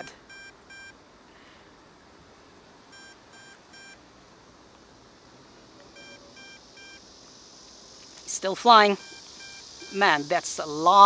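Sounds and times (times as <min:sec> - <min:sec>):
short electronic beeps: 0:00.0 - 0:01.0, 0:02.9 - 0:04.0, 0:06.0 - 0:07.0, 0:09.0 - 0:10.0.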